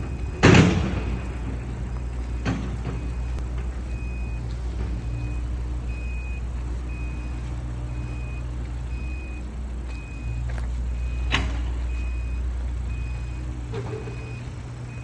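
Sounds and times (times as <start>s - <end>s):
loader engine humming: 0.0s - 15.0s.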